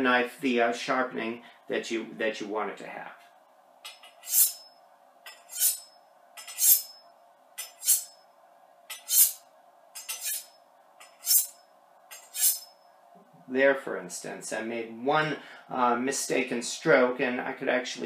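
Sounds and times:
knife scraping on honing steel: 3.9s - 4.7s, 5.3s - 7.0s, 7.6s - 8.2s, 8.9s - 9.4s, 10.0s - 12.8s.

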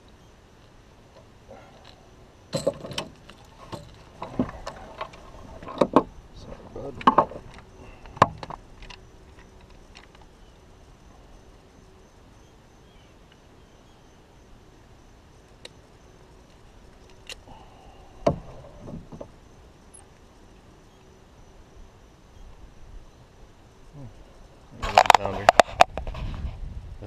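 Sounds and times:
small clatters: 0.6s - 6.1s, 6.8s - 10.4s.

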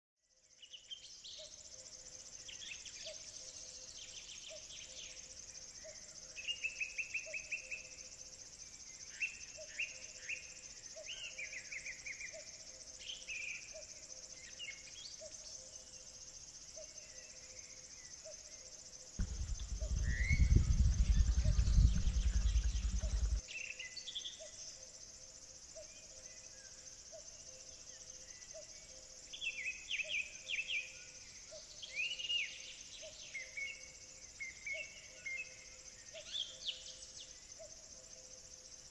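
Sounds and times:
insects droning: 0.3s - 38.9s
birds calling and trilling: 19.2s - 23.4s
low rumble: 19.2s - 23.4s
low short repeating note: 19.2s - 23.4s.

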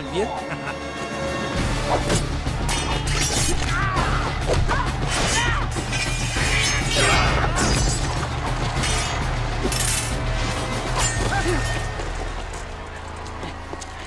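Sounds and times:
film score music: 0.0s - 14.0s
sword blades clashing: 2.1s - 4.2s, 5.0s - 8.1s, 8.8s - 10.2s, 10.9s - 11.9s.

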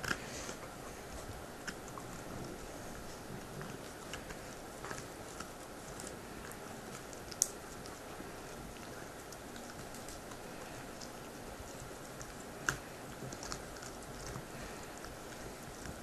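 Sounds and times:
teeth crunching on bone: 0.0s - 16.0s
bone cracking: 6.9s - 8.0s.

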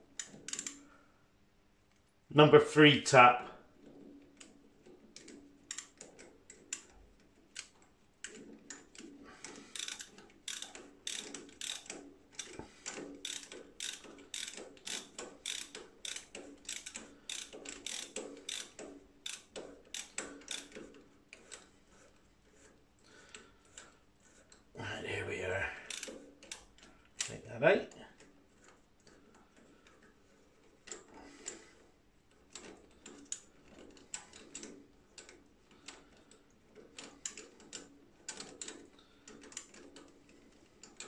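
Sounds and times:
ratcheting tap wrench clicking: 0.2s - 0.8s, 3.8s - 21.7s, 25.9s - 27.4s.

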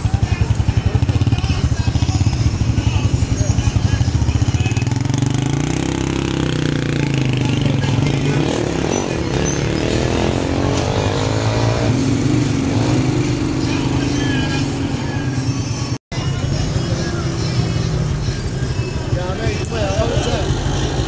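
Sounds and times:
vehicle engines in slow traffic: 0.0s - 21.0s
engine revving up: 4.9s - 14.6s.

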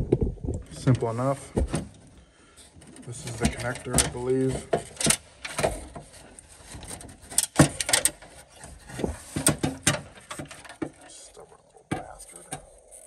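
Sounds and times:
clicks and knocks of plastic parts: 2.8s - 11.2s, 11.8s - 13.0s.

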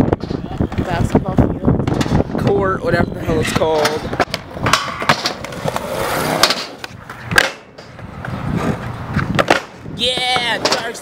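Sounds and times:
skateboard wheels rolling on concrete: 0.0s - 11.0s
skateboard clacks and slam: 1.8s - 2.5s, 3.6s - 11.0s.

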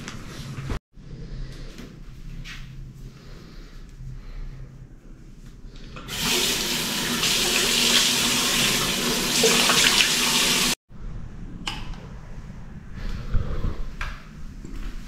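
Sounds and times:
faucet water splashing on hands: 6.1s - 10.8s.

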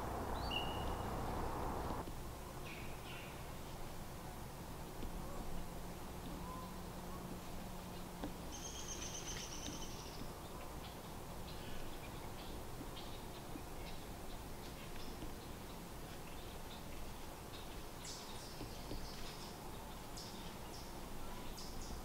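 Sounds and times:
faint low hum: 0.0s - 22.0s
short high bird chirps: 0.3s - 1.1s.

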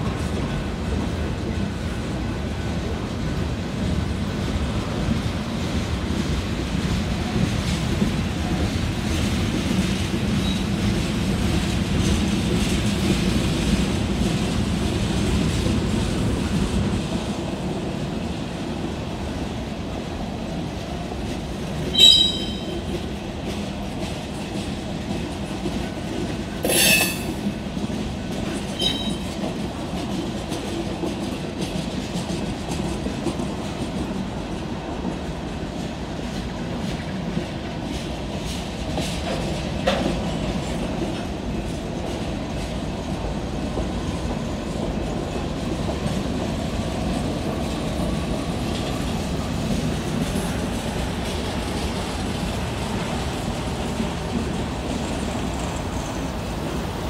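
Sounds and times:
freight train rumbling past: 0.0s - 57.0s
high wheel squeals: 21.9s - 22.8s, 28.8s - 29.3s.

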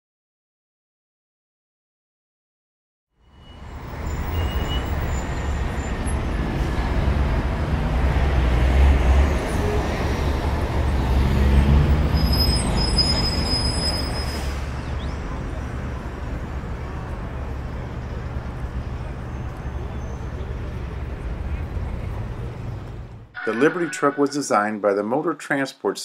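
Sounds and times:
heavy vehicle engine rumbling: 3.6s - 23.6s.

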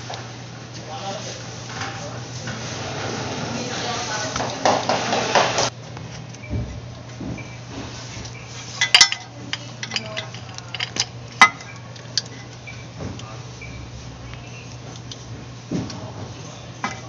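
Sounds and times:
steady low hum: 0.0s - 17.0s
metal chain clinking on canister: 8.8s - 12.5s.

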